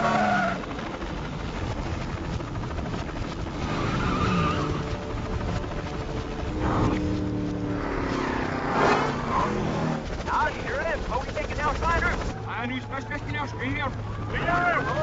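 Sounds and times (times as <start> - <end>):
reversed car engines: 0.0 - 0.6, 3.4 - 5.1, 5.8 - 10.4
reversed skidding tyres: 3.6 - 5.0, 6.5 - 10.1.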